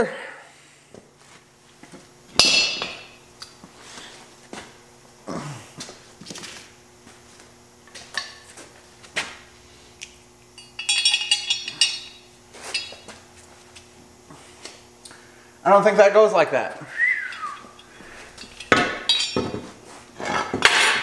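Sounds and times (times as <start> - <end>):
faint steady hum: 0.0 - 21.0
metallic rattling and clinking: 10.0 - 13.1, 17.7 - 19.6
metal parts clanking: 10.6 - 13.0, 17.8 - 19.6.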